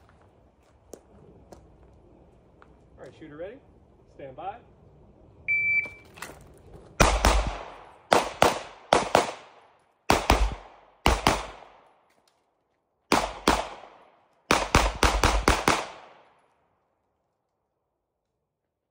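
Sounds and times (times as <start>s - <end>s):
gunshots with echo: 7.0s - 11.9s, 13.1s - 16.3s.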